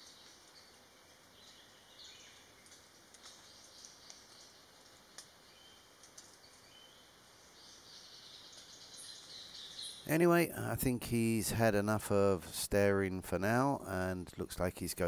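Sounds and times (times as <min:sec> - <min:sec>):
soft forest hiss: 0:00.0 - 0:15.0
light ticks: 0:02.6 - 0:05.4, 0:06.0 - 0:06.7.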